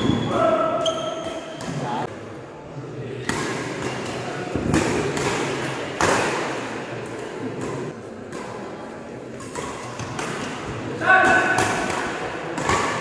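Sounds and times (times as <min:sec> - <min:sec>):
rackets hitting shuttlecock: 0:03.2 - 0:13.0.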